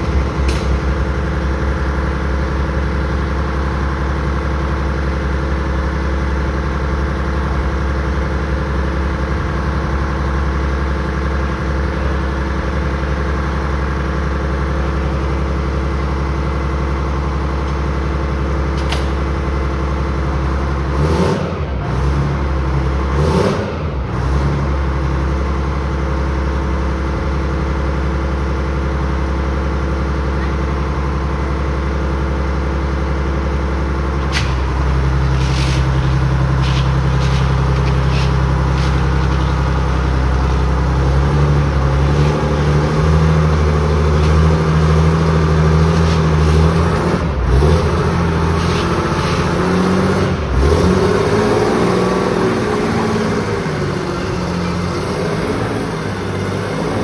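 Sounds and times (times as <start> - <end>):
tracked vehicle engine running: 0.0 - 57.0.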